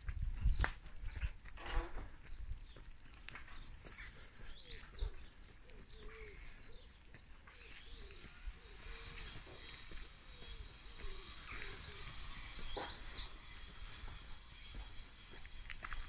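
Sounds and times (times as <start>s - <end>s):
lower bird call: 3.5s - 15.6s.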